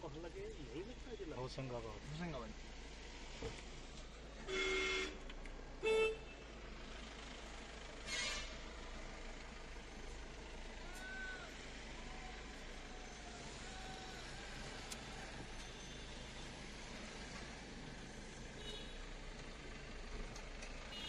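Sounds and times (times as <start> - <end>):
vehicle horns honking: 4.5 - 5.2, 5.8 - 6.4, 8.0 - 8.6, 18.6 - 19.0.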